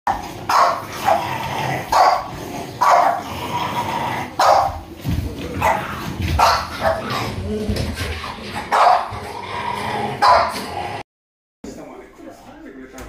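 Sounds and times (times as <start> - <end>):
dog barking: 0.5 - 3.2, 4.4 - 4.8, 5.6 - 7.1, 8.6 - 9.2, 10.2 - 10.6.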